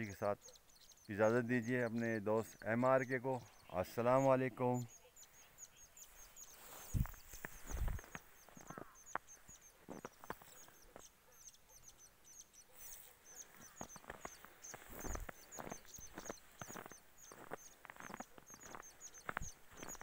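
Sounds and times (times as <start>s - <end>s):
small bird chirping: 0.0s - 20.0s
footsteps in snow: 6.2s - 11.1s, 12.8s - 20.0s.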